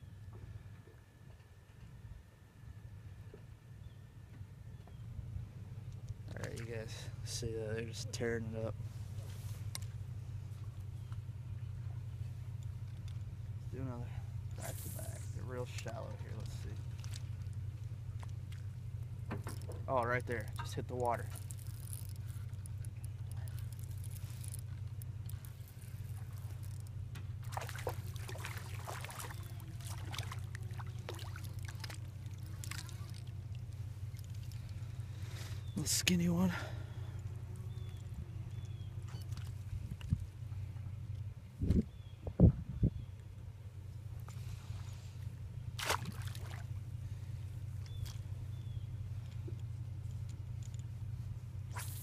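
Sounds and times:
steady low hum: 0.0 - 52.0
fish splashing at water surface: 27.4 - 33.3, 45.8 - 46.7
wind buffeting microphone: 41.4 - 43.1.

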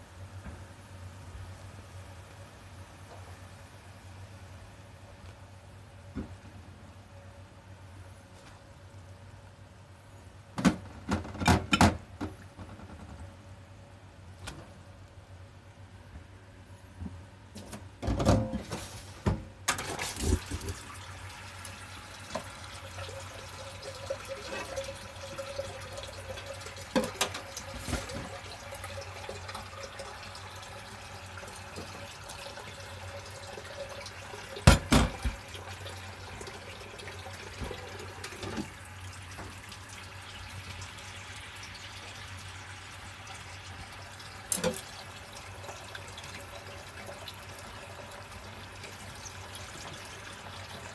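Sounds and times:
soup bubbling in a pot: 20.0 - 50.9.

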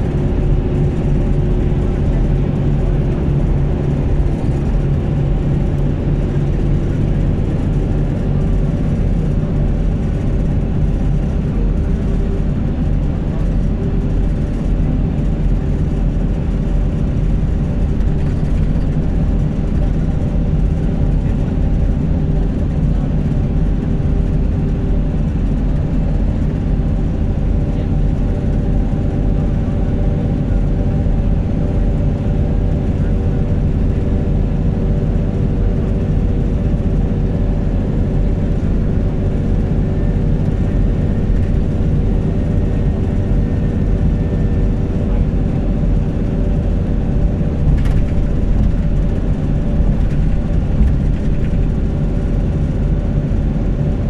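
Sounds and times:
road and engine drone inside vehicle: 0.0 - 54.0.

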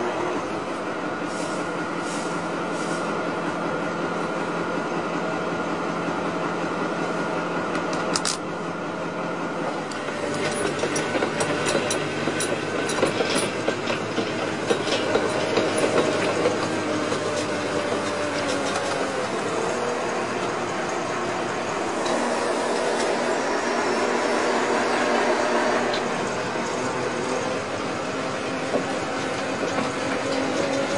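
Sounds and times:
metal clanks and rattles: 10.4 - 19.0.

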